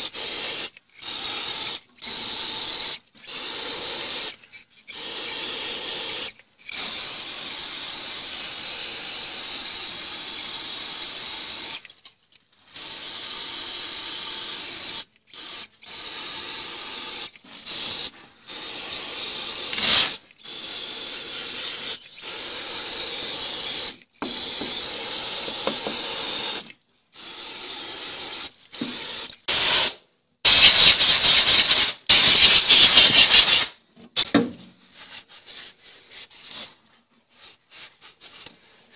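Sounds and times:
gas hissing from hose nozzle: 0.0 - 11.8, 12.7 - 33.8.

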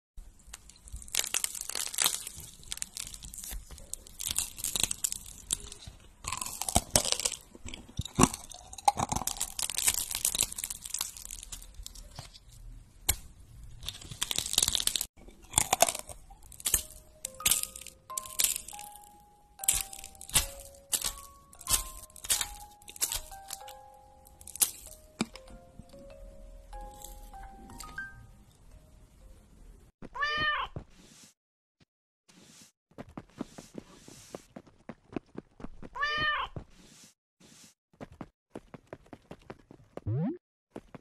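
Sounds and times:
candy crunching and crackling: 0.2 - 26.0, 26.7 - 27.9.

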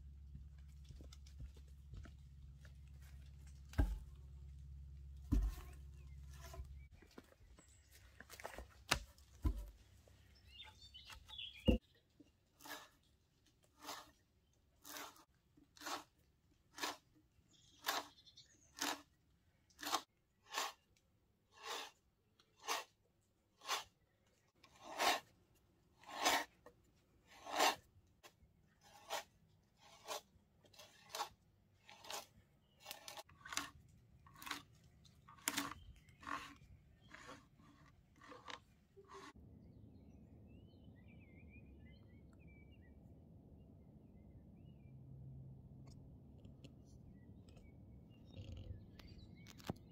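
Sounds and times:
hand auger rasping into log: 2.6 - 7.0, 12.6 - 19.1, 19.7 - 20.9, 21.5 - 23.0, 23.6 - 24.0, 24.6 - 25.4, 26.0 - 27.9, 28.7 - 39.4.

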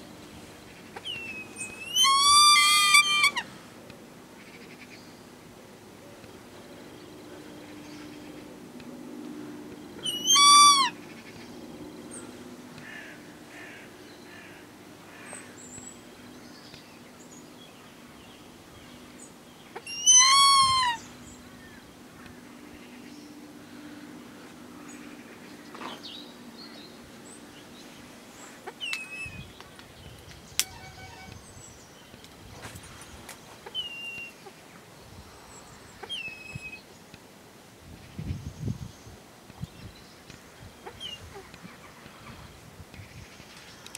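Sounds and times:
faint outdoor background: 0.0 - 43.9
hawk calling: 1.0 - 3.5, 10.0 - 11.0, 19.8 - 21.1.

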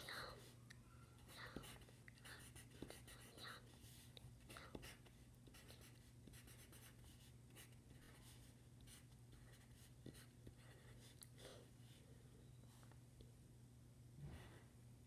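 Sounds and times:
low steady hum: 0.0 - 15.0
pencil scratching on paper: 1.2 - 11.5.

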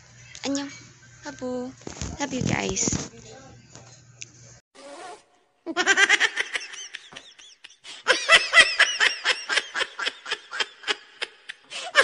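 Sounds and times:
girl laughing hard: 5.7 - 12.0.

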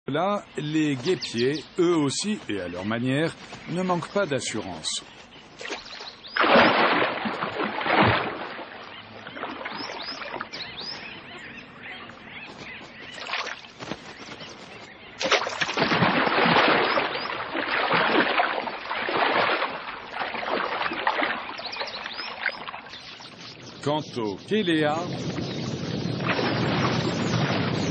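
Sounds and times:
high chirping bird calls: 0.1 - 6.4, 8.7 - 15.3, 21.4 - 27.9
water splashing: 0.4 - 23.6, 25.0 - 27.9.

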